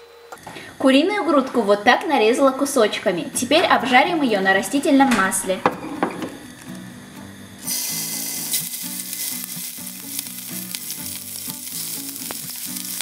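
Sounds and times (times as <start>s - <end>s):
chicken sizzling in hot oil: 7.4s - 13.0s.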